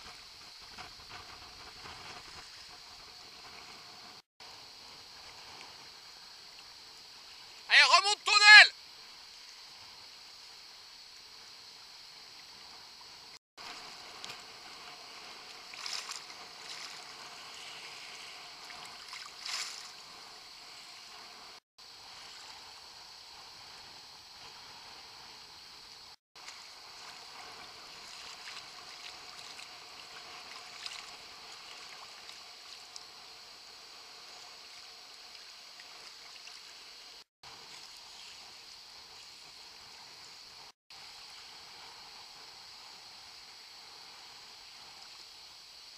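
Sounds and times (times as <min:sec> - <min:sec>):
sea water sloshing and splashing: 0:13.6 - 0:22.5, 0:26.4 - 0:33.0, 0:35.3 - 0:37.0.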